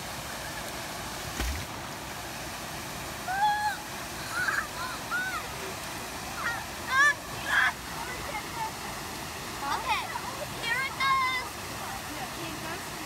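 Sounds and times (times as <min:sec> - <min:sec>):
river water rushing: 0:00.0 - 0:13.0
children shouting and squealing: 0:03.3 - 0:05.6.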